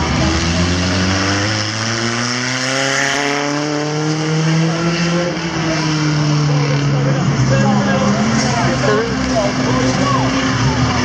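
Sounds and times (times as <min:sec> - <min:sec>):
car engine revving up: 0:00.0 - 0:11.0
racing car engines running: 0:00.0 - 0:11.0.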